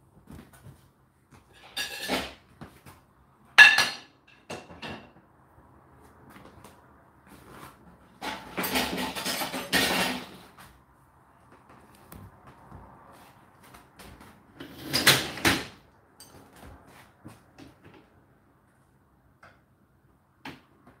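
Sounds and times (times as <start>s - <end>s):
pots and pans clattering: 1.6s - 2.4s, 3.6s - 5.2s, 8.2s - 10.5s.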